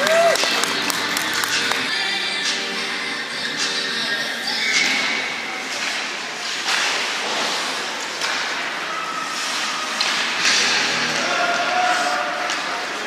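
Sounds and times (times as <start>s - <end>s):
skate blades scraping ice: 4.9s - 13.0s.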